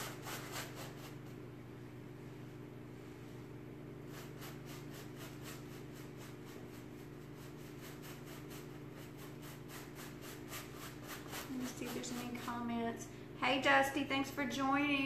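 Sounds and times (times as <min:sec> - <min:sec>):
steady low hum: 0:00.0 - 0:15.0
paintbrush scrubbing fabric: 0:02.9 - 0:12.8.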